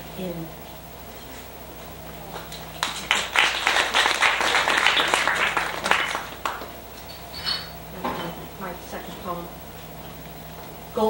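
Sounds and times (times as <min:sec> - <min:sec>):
audience applauding: 0:02.4 - 0:06.8.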